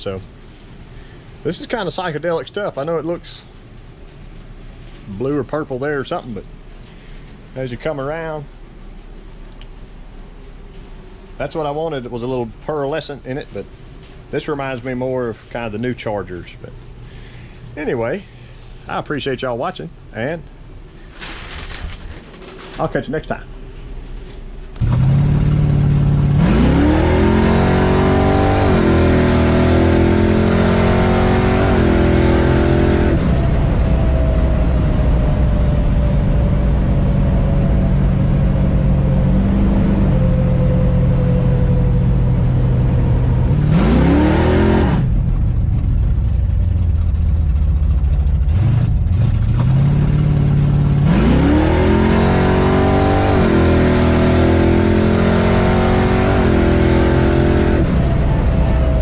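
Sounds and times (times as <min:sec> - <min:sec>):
car engine revving: 0:24.6 - 0:59.0.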